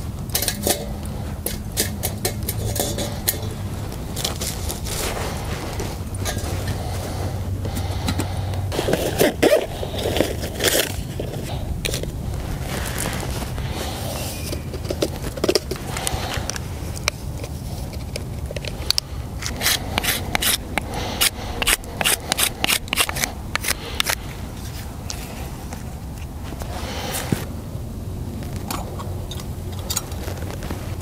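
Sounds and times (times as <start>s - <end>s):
steady low rumble: 0.0s - 31.0s
zippered pouch opening: 8.7s - 13.6s.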